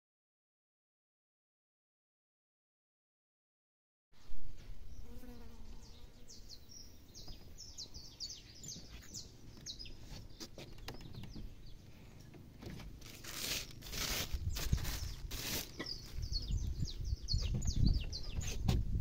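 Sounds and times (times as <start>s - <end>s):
small birds chirping: 4.8s - 19.0s
loud rustling: 12.6s - 16.2s.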